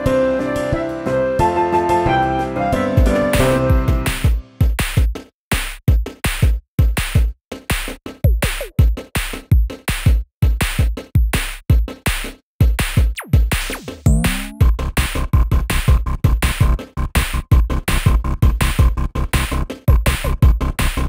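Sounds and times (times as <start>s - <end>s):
drum machine beat: 3.8s - 21.0s
electronic music: 13.2s - 14.8s
sliding synth tones: 14.1s - 14.6s.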